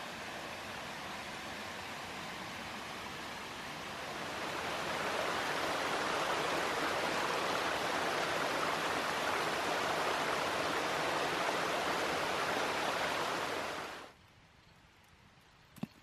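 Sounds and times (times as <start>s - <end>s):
stream splashing over rocks: 4.0s - 14.1s.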